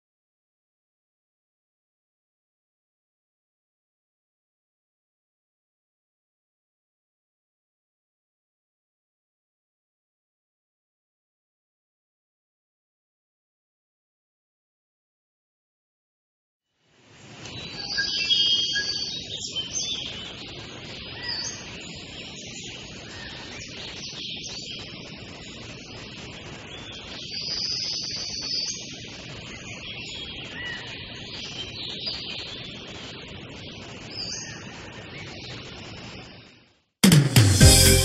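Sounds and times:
steady background hiss: 16.8 - 36.8
birds chirping: 17.4 - 36.6.

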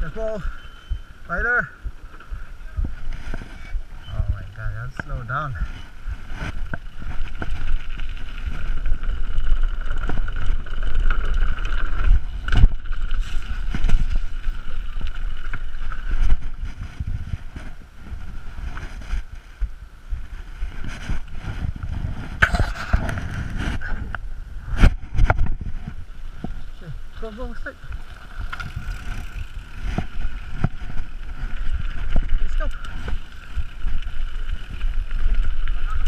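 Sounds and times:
wind on microphone: 0.0 - 36.0
tyres rumbling over dirt: 25.0 - 36.0.

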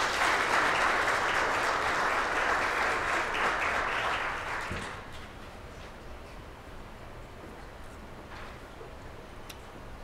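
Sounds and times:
audience applauding: 0.0 - 5.1.

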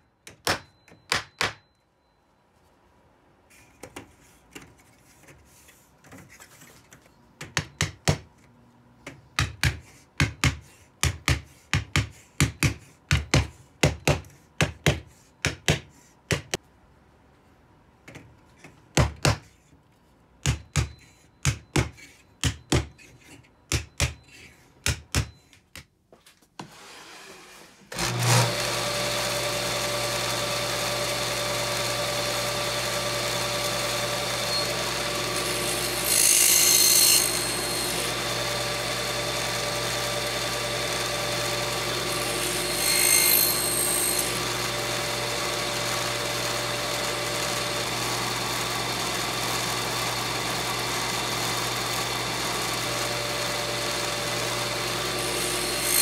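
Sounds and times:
table saw running: 26.7 - 56.0.

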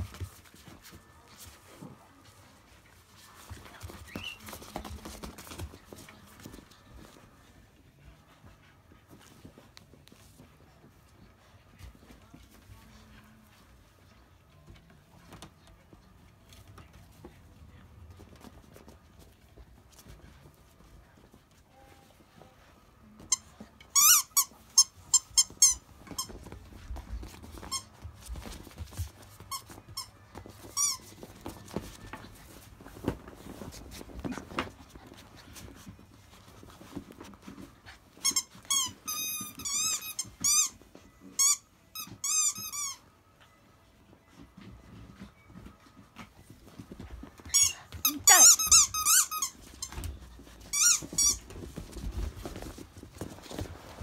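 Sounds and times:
puppies squeaking and yipping: 47.5 - 49.4.

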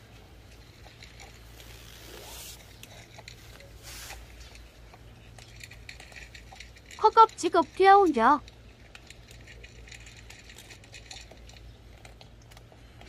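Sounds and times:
cats crunching dry kibble: 0.0 - 13.0
short rustles: 1.4 - 4.8.

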